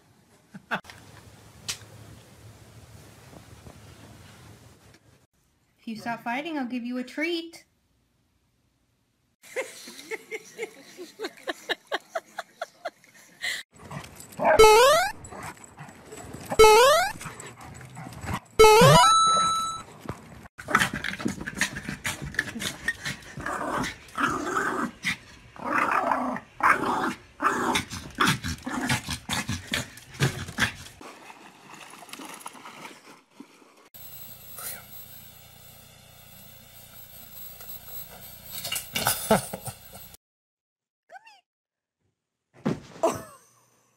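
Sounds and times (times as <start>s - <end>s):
dogs yipping and barking: 14.3s - 19.8s.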